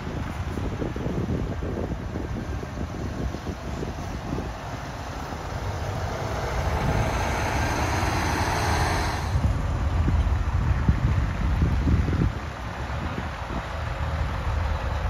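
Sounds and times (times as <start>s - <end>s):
wind rumble on microphone: 0.0s - 15.0s
heavy truck driving past: 2.0s - 11.2s.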